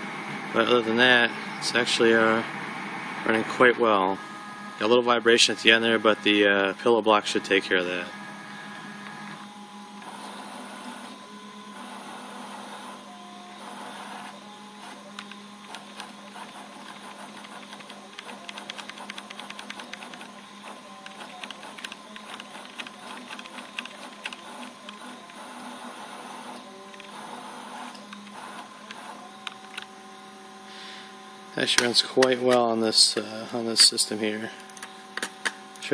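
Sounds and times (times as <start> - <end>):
servo motors whining: 7.4 - 35.8.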